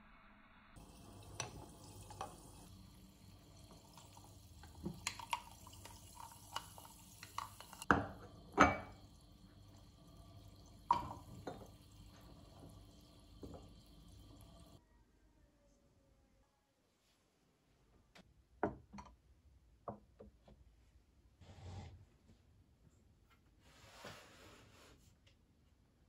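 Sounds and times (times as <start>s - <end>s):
hiss of bubbles: 0.8s - 14.8s
liquid sloshing: 0.8s - 14.8s.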